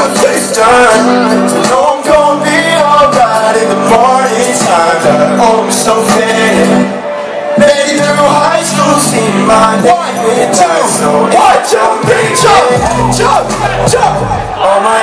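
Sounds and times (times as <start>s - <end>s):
person singing: 0.0s - 15.0s
backing track with bass and drums: 12.0s - 14.5s.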